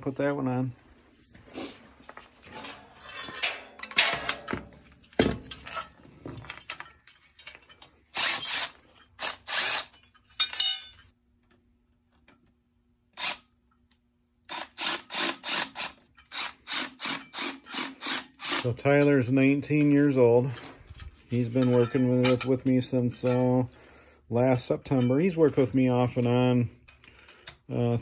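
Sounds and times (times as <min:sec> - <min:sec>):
metal parts clattering: 0:02.4 - 0:11.1
cordless driver whirring: 0:08.2 - 0:09.8, 0:13.2 - 0:13.4.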